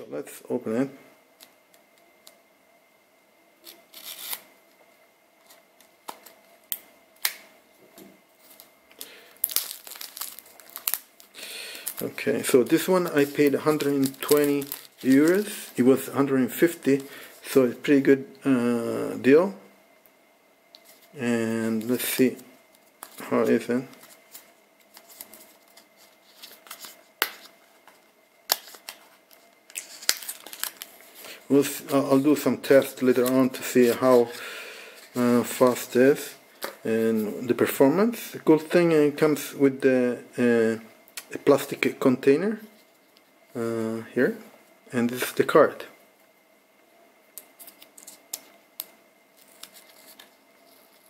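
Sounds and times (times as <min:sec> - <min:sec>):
plastic package snaps: 0:06.1 - 0:07.5
package rustling: 0:08.4 - 0:16.0, 0:22.8 - 0:31.3.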